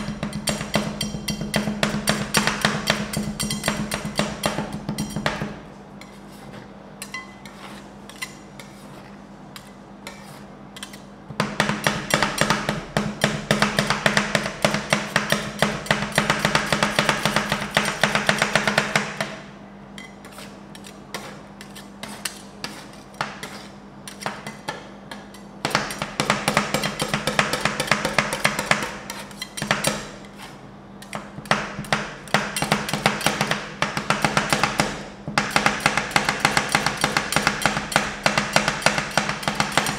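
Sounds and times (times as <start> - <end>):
metal spatulas tapping on steel plate: 0.0 - 5.4, 24.1 - 30.0
spatulas scraping: 6.0 - 11.1, 20.0 - 25.5, 28.9 - 31.2.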